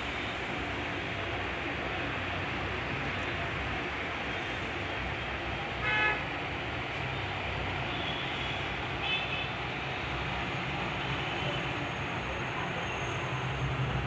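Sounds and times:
road traffic: 0.0s - 14.0s
vehicle horn tooting: 5.8s - 6.2s.

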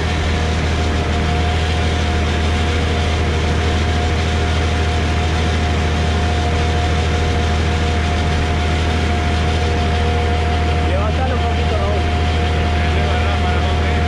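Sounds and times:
machine drone with whine: 0.0s - 14.0s.

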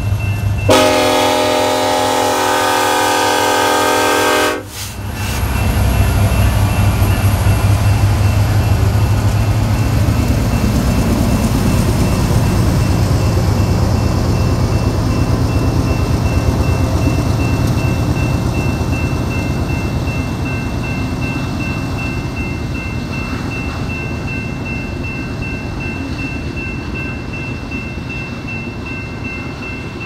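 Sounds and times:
diesel locomotives rumbling past: 0.0s - 30.0s
train wheels rolling on rails: 0.0s - 30.0s
locomotive air horn: 0.7s - 5.0s.

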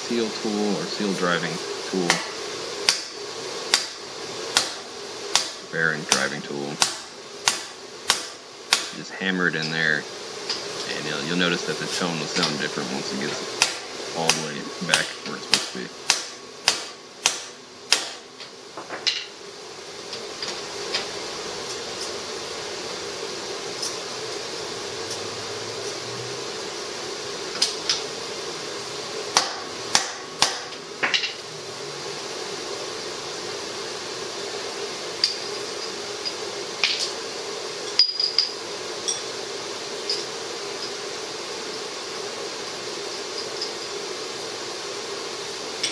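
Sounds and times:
steady hum: 0.0s - 45.9s
hammer striking metal: 29.4s - 31.3s.

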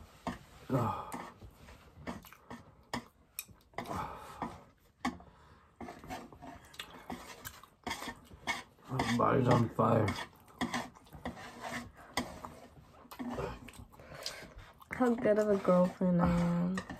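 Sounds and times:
chopsticks scraping metal tray: 5.8s - 16.9s.

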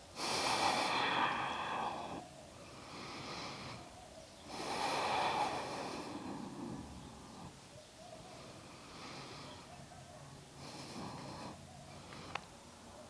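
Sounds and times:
woman breathing deeply: 0.2s - 7.6s.

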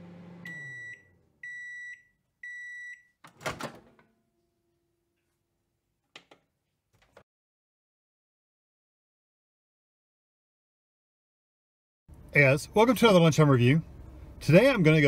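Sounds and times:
microwave oven hum: 0.0s - 1.6s
microwave beeps: 0.1s - 3.2s.

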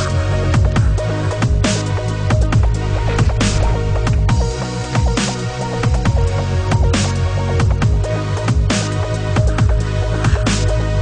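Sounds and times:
electronic music with heavy bass: 0.0s - 11.0s
bright crash-like swell: 1.9s - 7.2s.

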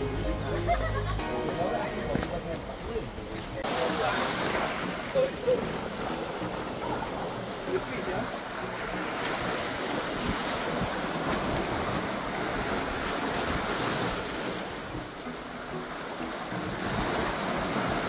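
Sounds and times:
waves washing over rocks: 3.6s - 18.0s
wind on microphone: 8.9s - 15.3s.

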